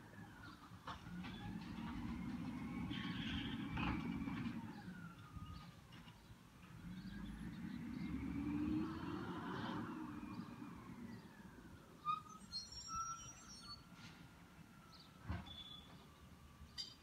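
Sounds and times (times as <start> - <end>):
distant vehicle passing: 0.1 - 12.1.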